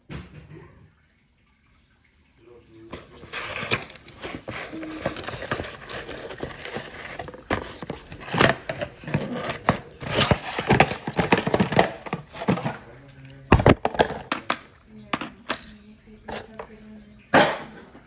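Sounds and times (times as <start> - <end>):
plastic wrapping crinkling: 3.0 - 12.8
knocks and scrapes against cardboard box: 3.3 - 12.7.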